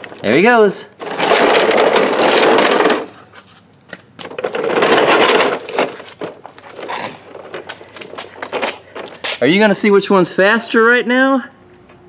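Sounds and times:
plastic toy wheels rattling on concrete: 0:00.0 - 0:03.5, 0:04.2 - 0:09.4.

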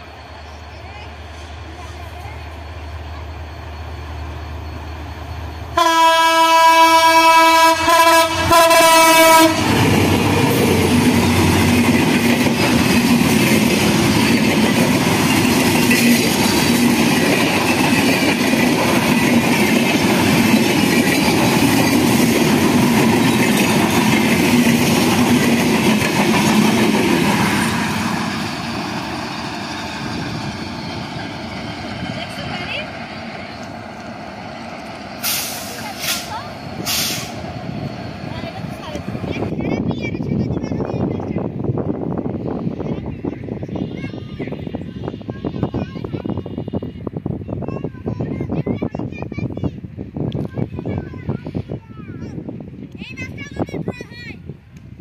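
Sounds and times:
train wheels rumbling and clattering: 0:00.0 - 0:55.0
train horn blast: 0:05.8 - 0:09.8.

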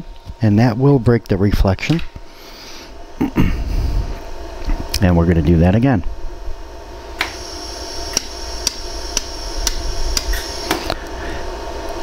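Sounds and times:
faint high whine: 0:00.0 - 0:12.0
laser welder ticks: 0:08.1 - 0:10.8.

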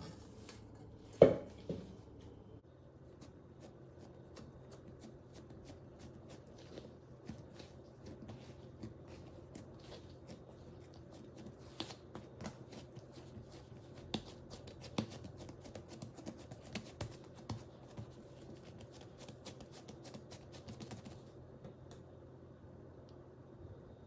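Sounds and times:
steady low hum: 0:00.0 - 0:24.0
sticky dough pats: 0:03.0 - 0:22.0.

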